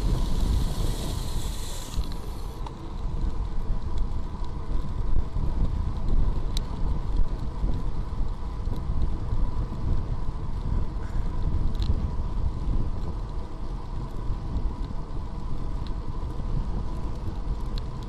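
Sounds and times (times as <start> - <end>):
bright hiss: 0.0 - 2.7
faint steady whine: 0.0 - 18.0
wind buffeting microphone: 0.0 - 18.0.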